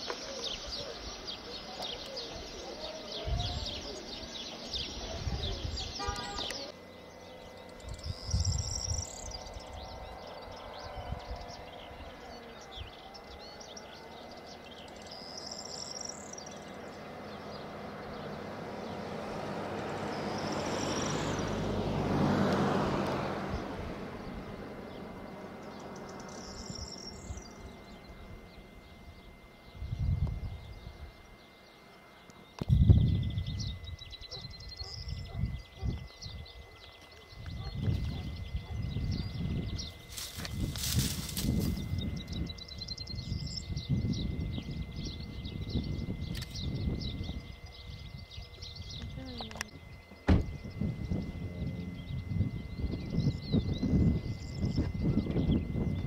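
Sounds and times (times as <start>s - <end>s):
birds chirping: 0.0s - 56.0s
vehicle passing: 16.5s - 27.7s, 50.4s - 54.1s
low thumps: 50.2s - 53.2s.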